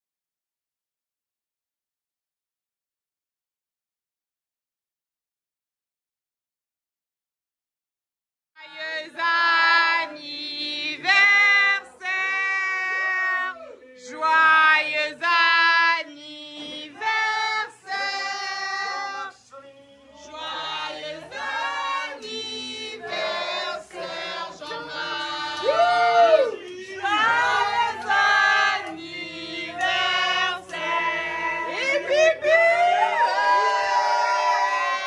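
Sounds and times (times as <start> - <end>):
group of voices singing: 8.6 - 35.0.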